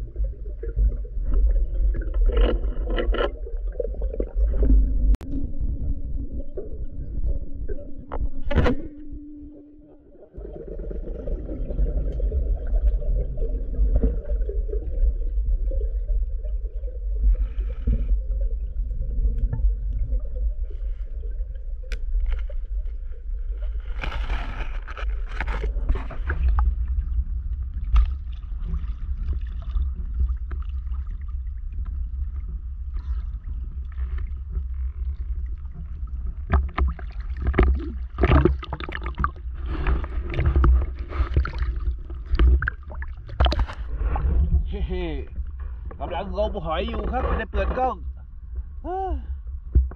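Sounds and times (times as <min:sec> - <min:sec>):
muffled underwater rumble: 0:00.0 - 0:49.9
water splashing at surface: 0:36.4 - 0:44.7.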